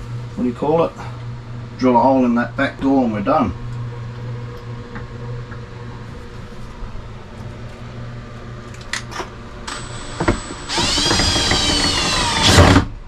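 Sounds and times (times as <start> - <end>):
drill motor running: 9.7 - 13.0.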